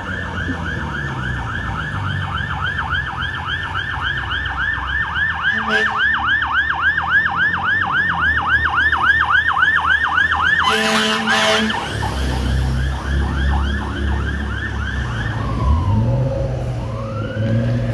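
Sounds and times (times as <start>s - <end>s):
engine low rumble: 0.0s - 10.6s, 11.7s - 17.9s
fire engine siren: 0.0s - 17.9s
horn blast: 5.5s - 6.1s, 10.6s - 11.9s.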